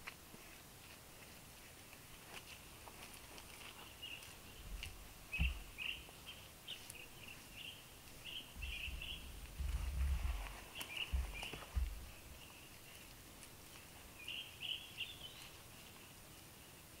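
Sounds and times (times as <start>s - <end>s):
hands patting wet mud: 0.0s - 14.4s
small bird chirping: 3.4s - 17.0s.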